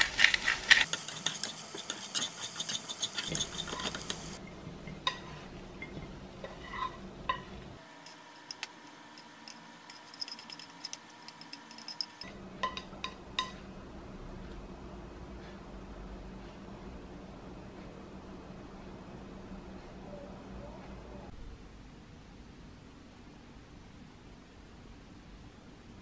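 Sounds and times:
food scraped onto ceramic plate: 0:00.0 - 0:04.4
wooden spatula scraping frying pan: 0:00.0 - 0:04.4, 0:05.0 - 0:09.0.

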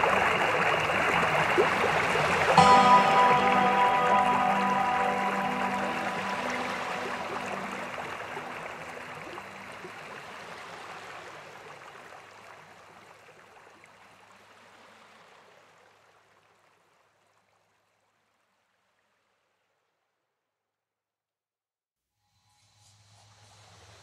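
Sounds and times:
waves washing on beach: 0:00.0 - 0:11.9.

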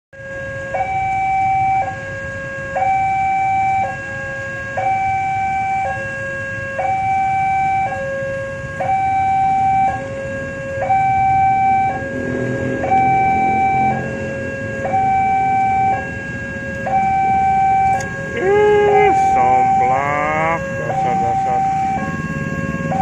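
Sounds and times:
low traffic rumble: 0:00.2 - 0:23.0
two-tone warning siren: 0:00.2 - 0:23.0.

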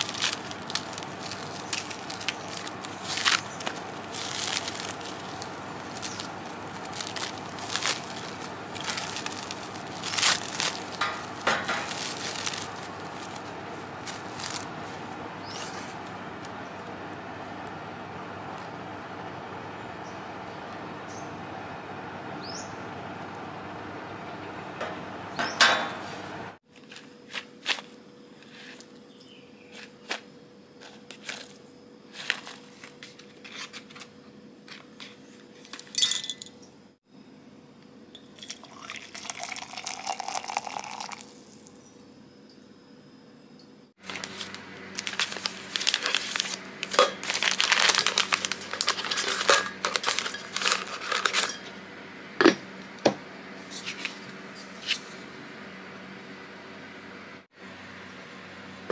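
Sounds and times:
dried tea rattling into canister: 0:00.0 - 0:15.8, 0:38.2 - 0:41.4, 0:44.0 - 0:51.7
plastic pouch crinkling: 0:00.0 - 0:16.2, 0:44.0 - 0:51.6.

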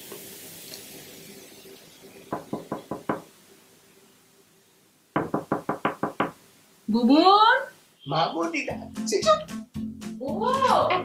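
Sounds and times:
knuckles knocking on wooden door: 0:02.3 - 0:03.3, 0:05.2 - 0:06.4.

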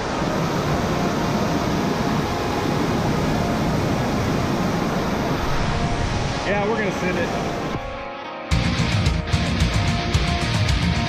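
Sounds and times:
whitewater rapids roaring: 0:00.0 - 0:08.0.

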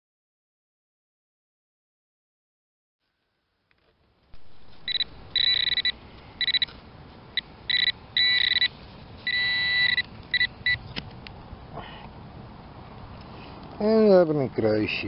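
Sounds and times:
metal detector pinpointer beeping: 0:04.4 - 0:06.8, 0:07.4 - 0:11.0
sharp clicks: 0:04.4 - 0:06.8.

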